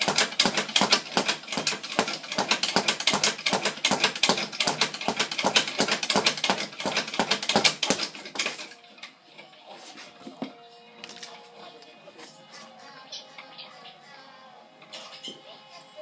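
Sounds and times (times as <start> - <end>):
speed bag being punched: 0.0 - 8.7.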